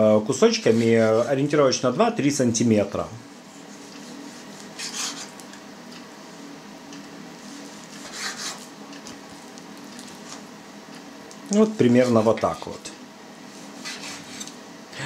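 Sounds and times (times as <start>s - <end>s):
faint hum: 0.0s - 15.0s
knife slicing meat on board: 13.7s - 14.5s.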